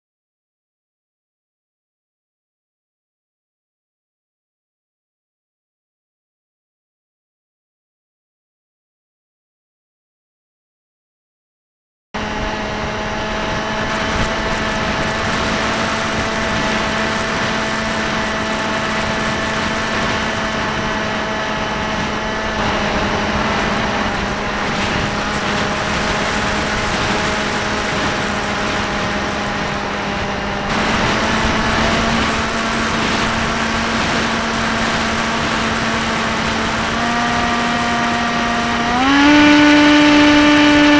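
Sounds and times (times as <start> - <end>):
model plane motor droning: 12.2 - 40.9.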